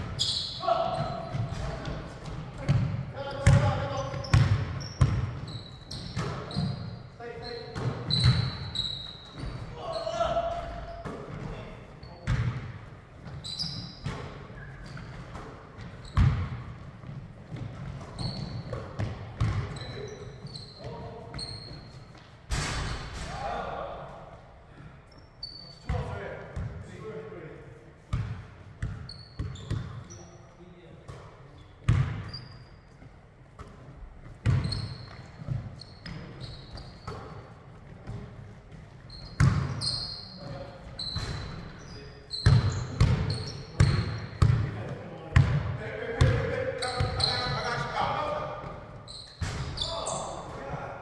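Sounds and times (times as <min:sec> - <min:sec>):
sneakers squeaking: 0:00.0 - 0:23.5, 0:24.6 - 0:26.9, 0:28.0 - 0:51.0
basketball bouncing on hardwood floor: 0:02.2 - 0:05.4, 0:15.8 - 0:19.8, 0:34.4 - 0:34.8, 0:39.4 - 0:39.8, 0:42.4 - 0:44.7
basketball bouncing on hardwood: 0:15.8 - 0:19.7, 0:39.4 - 0:39.8.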